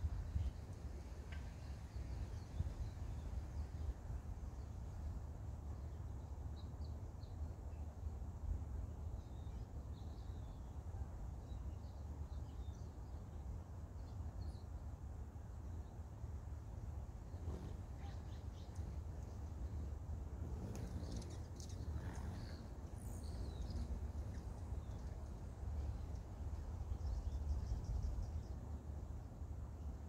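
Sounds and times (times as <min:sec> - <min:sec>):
wind rumbling on microphone: 0:00.0 - 0:05.9, 0:17.0 - 0:30.0.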